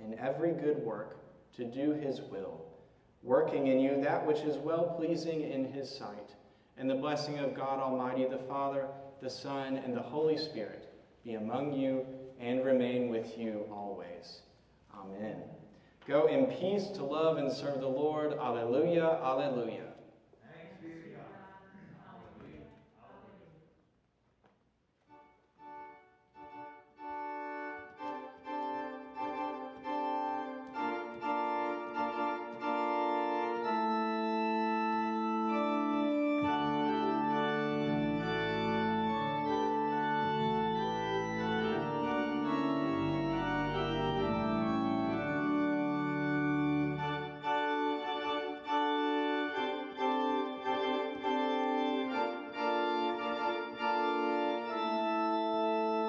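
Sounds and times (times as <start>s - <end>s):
organ chords: 0.0s - 20.0s, 25.0s - 56.0s
deep organ bass notes: 25.1s - 56.0s.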